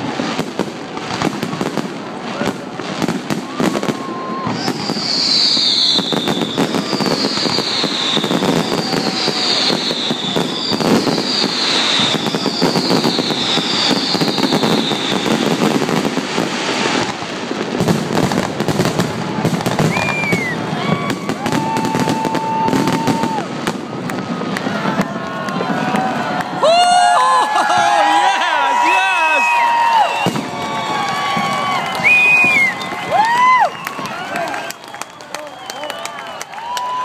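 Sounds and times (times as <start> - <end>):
fireworks bursting and crackling: 0.0 - 37.0
falling firework whistles: 3.3 - 24.0, 29.3 - 37.0.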